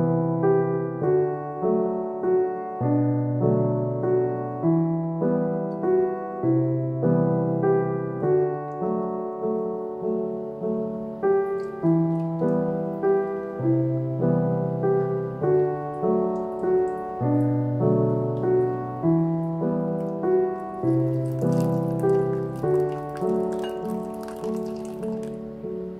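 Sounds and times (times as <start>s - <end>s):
gentle piano music: 0.0s - 25.9s
whisk clicking against glass bowl: 21.5s - 25.1s.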